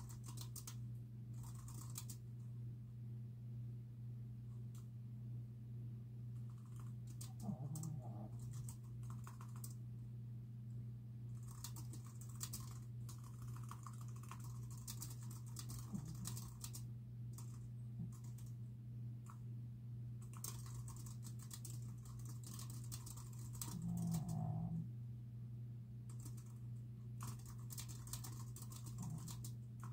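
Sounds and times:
steady low hum: 0:00.0 - 0:29.9.

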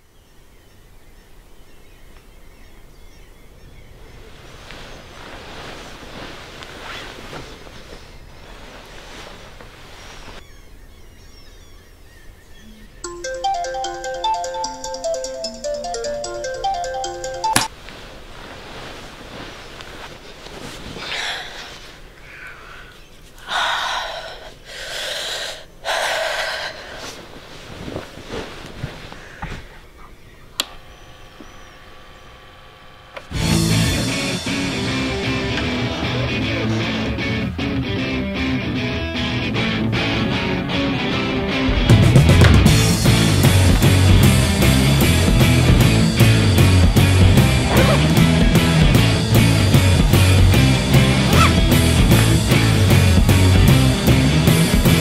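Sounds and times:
faint birds chirping: 0:00.0 - 0:14.5, 0:21.0 - 0:25.9, 0:26.9 - 0:32.7
duvet and bedding rustling: 0:03.7 - 0:10.5, 0:17.7 - 0:22.2, 0:26.4 - 0:30.5, 0:42.8 - 0:53.1.

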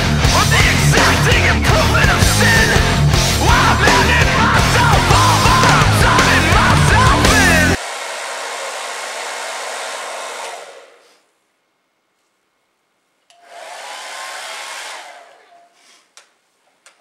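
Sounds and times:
hair dryer blowing: 0:04.8 - 0:11.3, 0:13.3 - 0:15.7.

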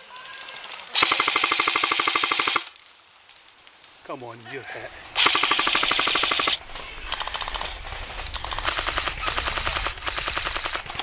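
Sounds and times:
airsoft rifles firing full auto: 0:00.9 - 0:02.7, 0:05.2 - 0:07.7, 0:08.3 - 0:11.0.

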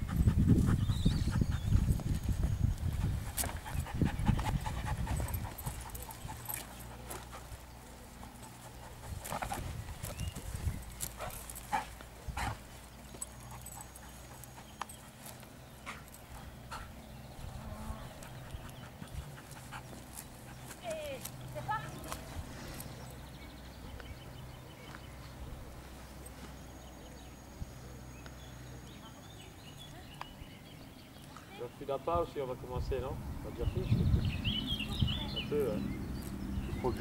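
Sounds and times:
dog panting: 0:00.0 - 0:17.0, 0:18.2 - 0:22.2.

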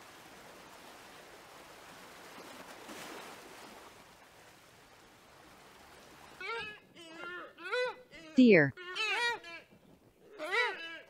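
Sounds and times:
water lapping: 0:00.0 - 0:08.2.

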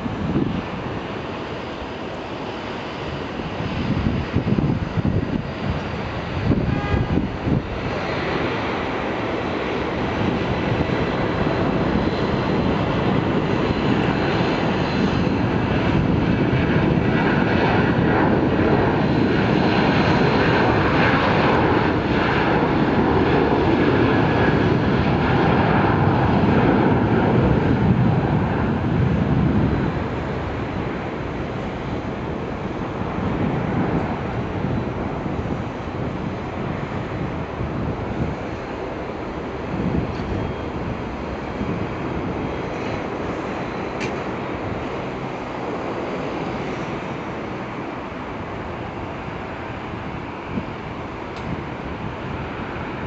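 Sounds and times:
jet engines at takeoff: 0:00.0 - 0:53.0.

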